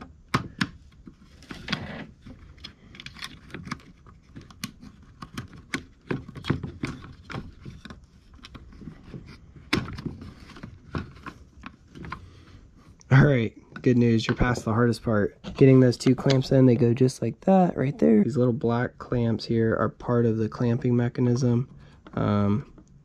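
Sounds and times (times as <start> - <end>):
plastic and metal parts clicking: 0.3 - 12.3.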